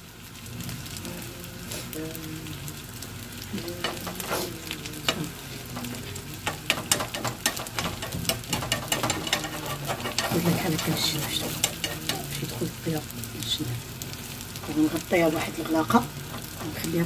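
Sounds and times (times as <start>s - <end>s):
omelette sizzling in a pan: 0.0s - 17.0s
metal spoon scraping a pan: 3.8s - 12.7s, 14.6s - 17.0s.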